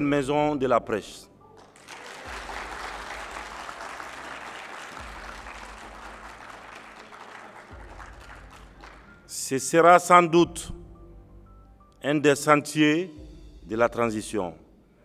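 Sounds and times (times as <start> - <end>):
audience applauding: 1.6 - 9.1.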